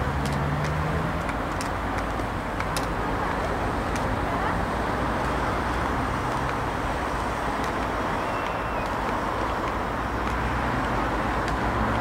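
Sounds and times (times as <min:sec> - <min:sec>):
faint clicks: 0:07.6 - 0:12.0.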